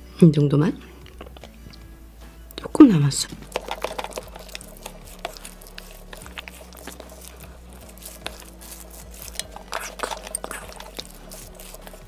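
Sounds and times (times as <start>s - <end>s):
spoon scraping a paper bowl: 3.4s - 12.0s.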